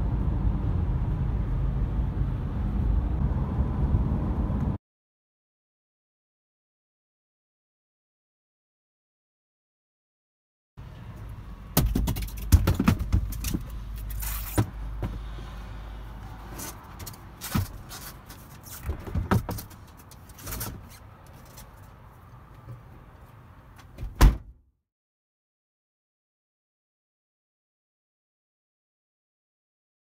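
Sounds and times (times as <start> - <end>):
tyres thumping and knocking: 11.7 - 13.8, 18.8 - 19.9
handling noise: 11.7 - 15.4, 16.5 - 22.0
sharp loud thump: 24.1 - 24.5.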